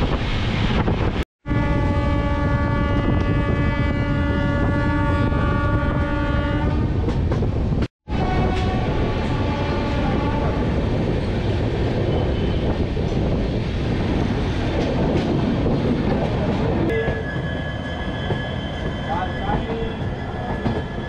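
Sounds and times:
train wheels rumbling on rails: 1.8s - 21.0s
train wheels squealing: 12.1s - 12.8s, 16.9s - 21.0s.

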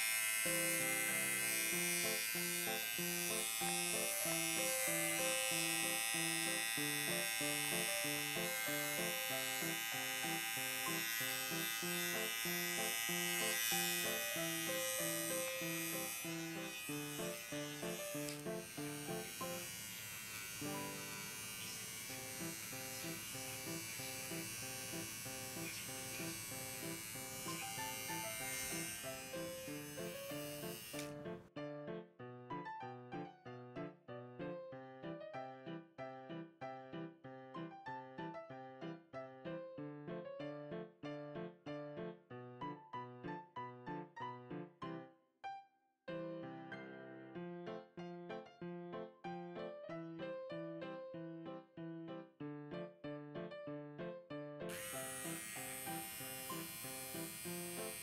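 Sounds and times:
electric hair clipper buzzing: 0.0s - 31.4s, 54.7s - 58.0s.

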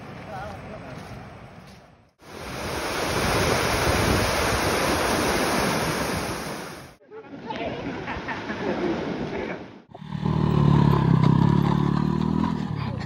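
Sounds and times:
turbulent water rushing: 2.2s - 7.0s.

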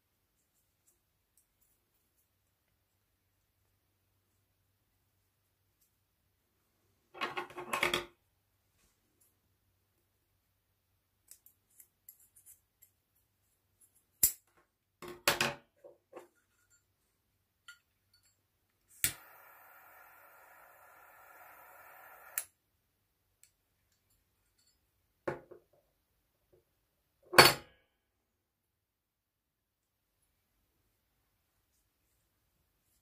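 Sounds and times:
torch flame hissing: 18.9s - 22.5s
torch lighter clicking: 19.0s - 22.5s.

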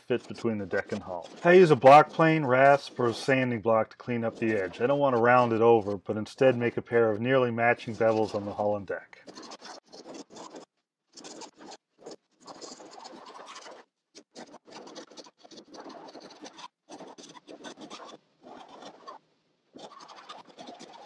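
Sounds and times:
hand tool scraping wood: 0.0s - 11.7s.

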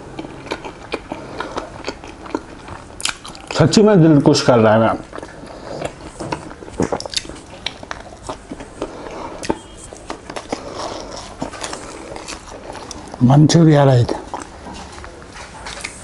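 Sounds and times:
person chewing pastry: 0.0s - 16.0s
mouth clicks and smacks: 0.2s - 3.6s, 5.1s - 13.2s.

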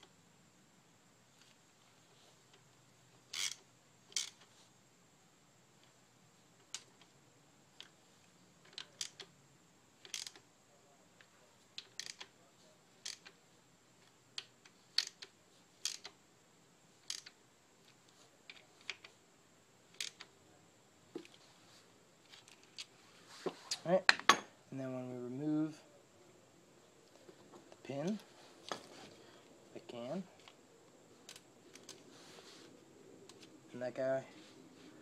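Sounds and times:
clicks of chain and parts handled: 11.8s - 12.3s.

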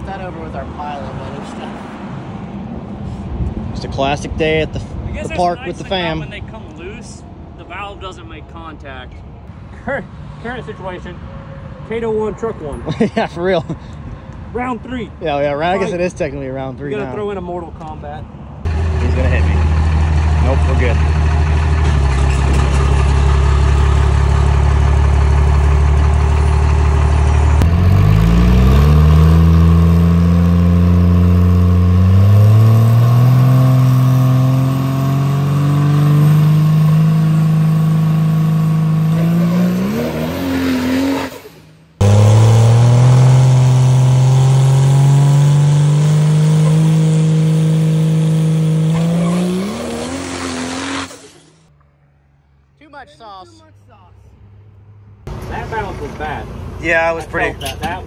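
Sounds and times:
diesel truck engine revving: 18.7s - 51.7s.

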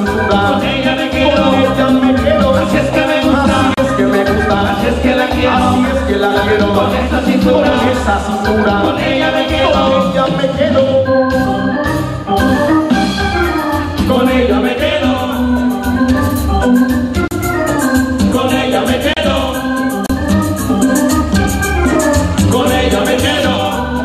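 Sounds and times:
electronic keyboard melody: 0.0s - 24.0s
percussion: 0.0s - 24.0s
pulsing bass line: 0.0s - 24.0s.

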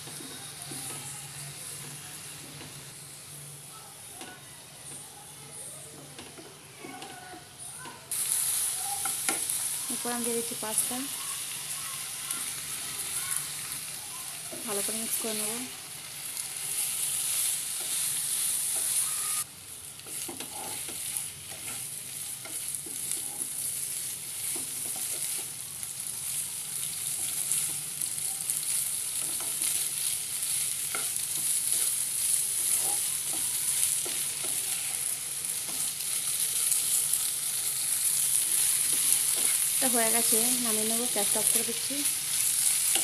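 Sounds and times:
food sizzling in frying pan: 0.0s - 43.0s
spatula scraping and tapping pan: 20.0s - 23.7s, 24.4s - 25.6s, 38.2s - 39.8s.

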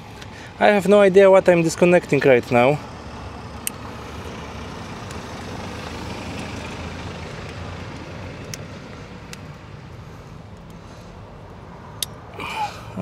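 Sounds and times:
road traffic rumble: 0.0s - 13.0s
plastic connectors clicking: 7.4s - 8.7s.

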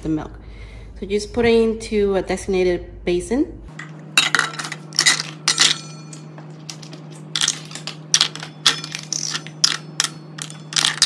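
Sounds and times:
steady low hum: 0.0s - 11.0s
plastic parts clattering into metal bowl: 4.2s - 11.0s.

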